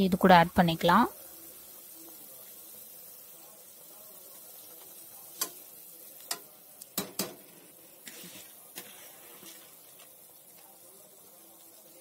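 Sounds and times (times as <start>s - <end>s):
faint simmering: 0.0s - 12.0s
ladle knocking on pot: 7.0s - 7.4s.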